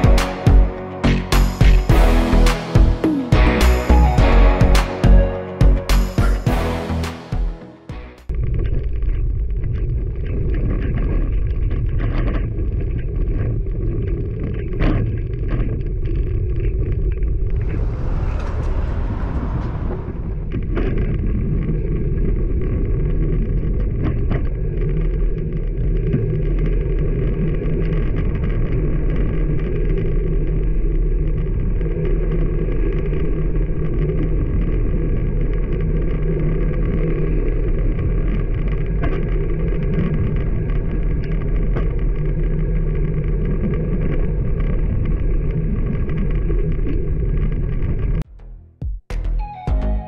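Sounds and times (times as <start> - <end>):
wind rumble on microphone: 8.3 - 48.3.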